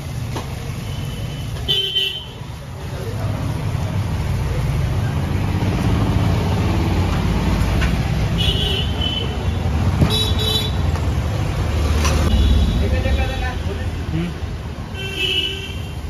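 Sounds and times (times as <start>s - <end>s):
traffic rumble: 0.0s - 16.0s
vehicle horns tooting: 8.4s - 10.9s, 15.0s - 16.0s.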